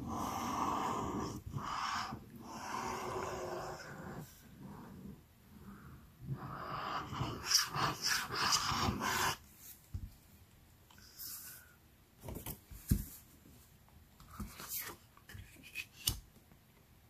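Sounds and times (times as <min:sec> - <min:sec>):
glue bottle sputtering and hissing: 0:06.8 - 0:09.4.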